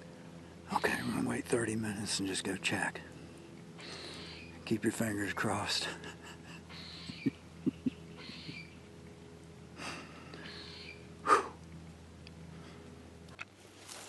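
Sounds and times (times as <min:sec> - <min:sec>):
man breathing and sniffing: 0:09.8 - 0:11.6
man snorting: 0:11.2 - 0:11.6.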